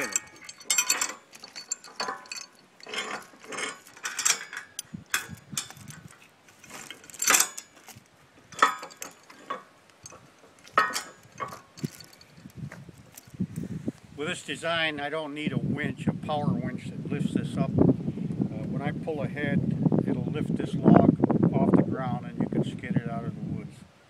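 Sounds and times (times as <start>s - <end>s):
chain rattling and clinking on metal: 0.0s - 13.4s.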